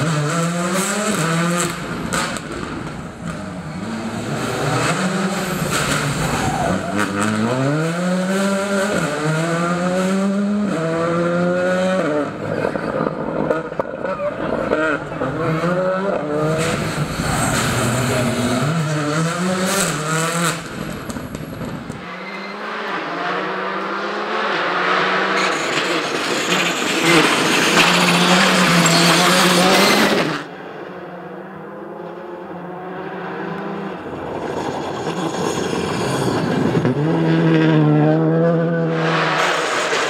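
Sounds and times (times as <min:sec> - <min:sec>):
rally car engine revving: 0:00.0 - 0:40.0
tyres and thrown gravel rushing: 0:25.4 - 0:30.1.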